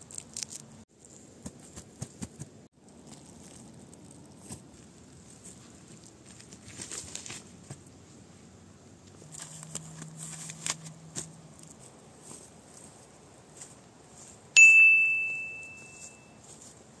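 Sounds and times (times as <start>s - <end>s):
pine needles rustling: 0.0s - 1.8s, 2.7s - 14.6s, 15.7s - 17.0s
bell-like ding: 14.6s - 16.4s.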